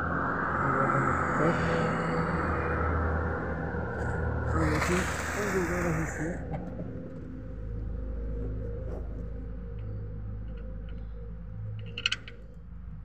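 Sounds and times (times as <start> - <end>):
steady low rumble: 0.0 - 13.0
sharp metallic clicks: 11.8 - 12.4.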